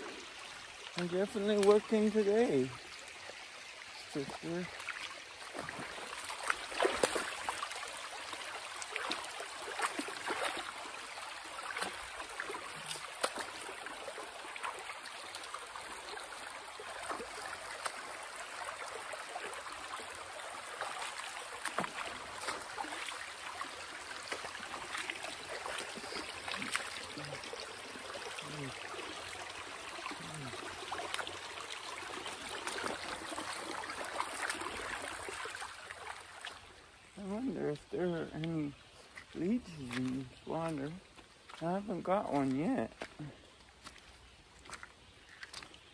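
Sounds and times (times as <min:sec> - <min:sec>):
creek running over stones: 0:00.0 - 0:45.9
footsteps on rocks: 0:42.3 - 0:45.9.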